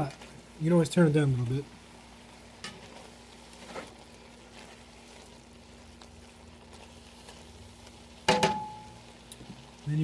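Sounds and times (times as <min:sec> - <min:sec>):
stew simmering: 0:00.0 - 0:10.0
spatula knocking against pan: 0:08.3 - 0:08.8.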